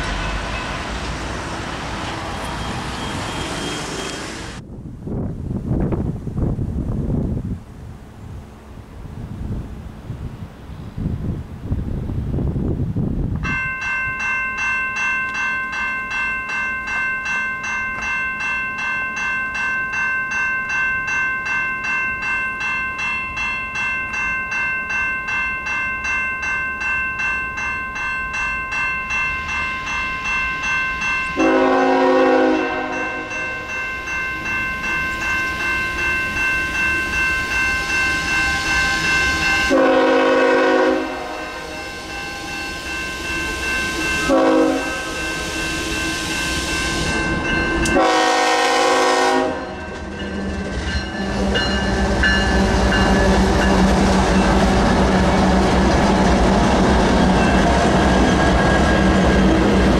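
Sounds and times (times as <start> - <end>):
railway crossing bell ringing: 0.0 - 4.3, 13.4 - 59.9
train running noise: 0.0 - 59.9
train horn blast: 31.4 - 33.5, 38.2 - 42.4, 44.2 - 45.6, 47.8 - 49.8.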